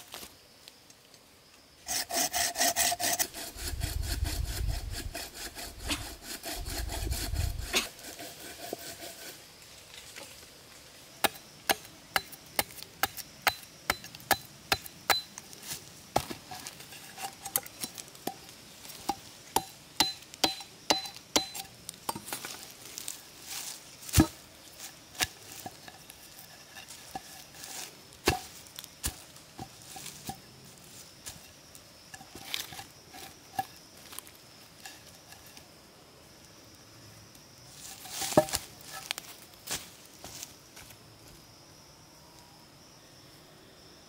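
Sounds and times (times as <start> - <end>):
machete chopping wood: 11.2 - 15.2, 19.1 - 22.4, 24.1 - 24.4, 28.2 - 29.2, 38.2 - 38.7.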